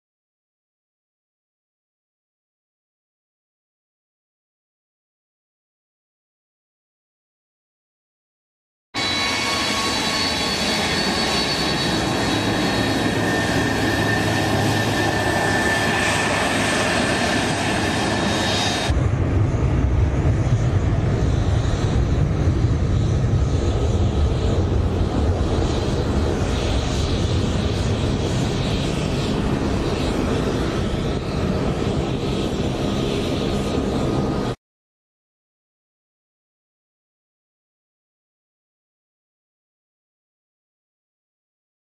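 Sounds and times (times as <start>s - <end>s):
jet engines deep rumble: 9.0s - 34.6s
jet engines whining: 9.0s - 34.6s.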